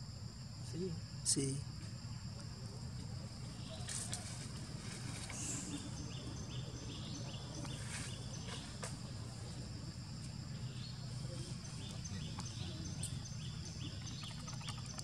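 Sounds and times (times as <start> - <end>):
insects droning: 0.0 - 15.0
rustles in dry leaves: 3.8 - 6.0, 7.7 - 9.6.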